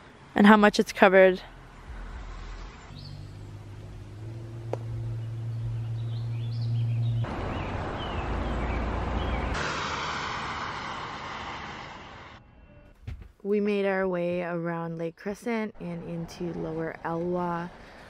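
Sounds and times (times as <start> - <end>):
birds chirping: 2.6 - 9.6
loud rushing noise: 7.3 - 12.4.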